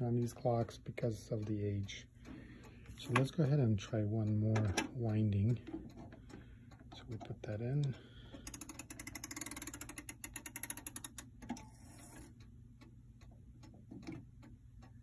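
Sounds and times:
clock winding ratchet clicks: 6.7s - 12.5s.

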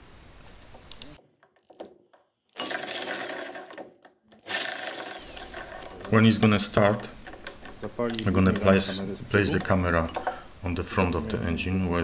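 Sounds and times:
electric drill cranking engine: 2.6s - 9.0s.

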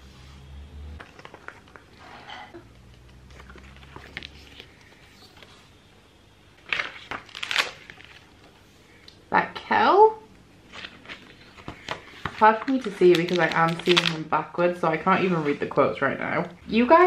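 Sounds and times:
calendar pages flipping: 1.0s - 2.2s, 2.9s - 5.6s, 6.6s - 8.5s, 10.6s - 14.2s.

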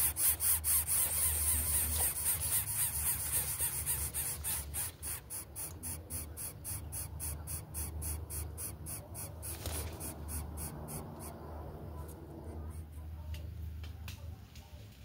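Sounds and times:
steady low hum: 0.0s - 14.4s
nestlings raspy begging calls: 0.2s - 11.4s.

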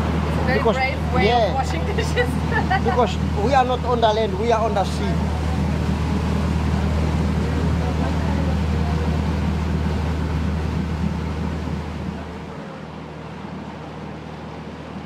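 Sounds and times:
boat engine droning: 0.0s - 15.0s
water rushing along hull: 0.0s - 15.0s.

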